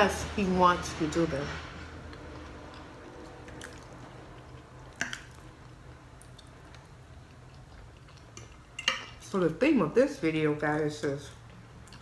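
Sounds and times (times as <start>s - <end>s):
wet mouth eating sounds: 2.1s - 8.6s.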